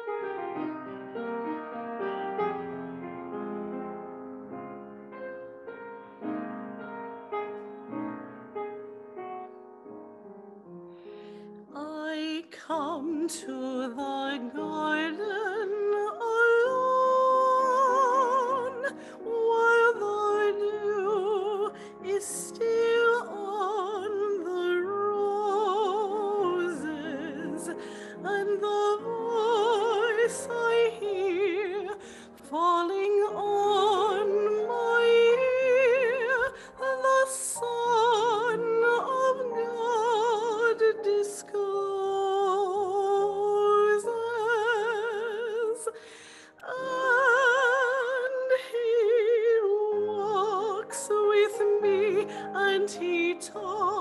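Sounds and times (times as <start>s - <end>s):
upright piano: 0.0s - 54.0s
woman singing with vibrato: 11.7s - 54.0s.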